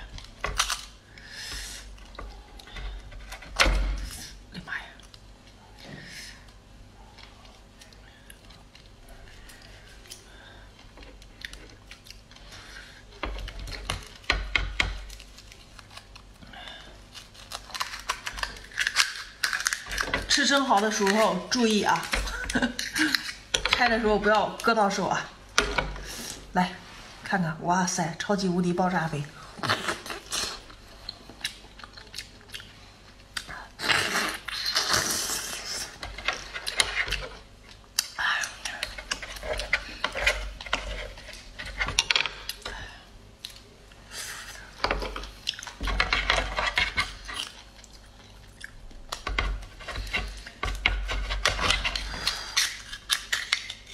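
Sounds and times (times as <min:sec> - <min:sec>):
shell cracking: 0:17.1 - 0:21.2, 0:51.6 - 0:53.9
wet chewing with mouth clicks: 0:29.6 - 0:36.0.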